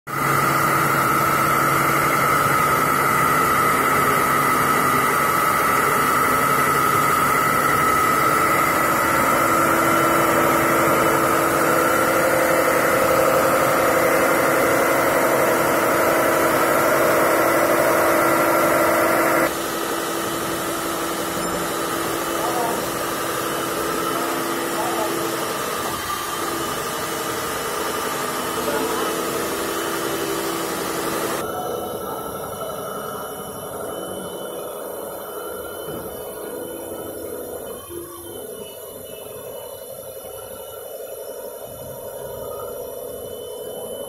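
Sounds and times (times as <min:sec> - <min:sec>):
core drill motor whine: 0:00.1 - 0:44.0
drill grinding concrete: 0:01.7 - 0:31.5.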